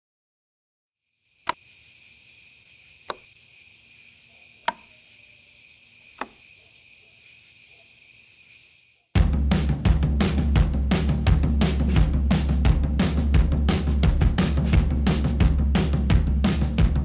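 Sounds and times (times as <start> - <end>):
crickets chirping: 1.0 - 9.2
loud drum-led music: 9.2 - 17.0.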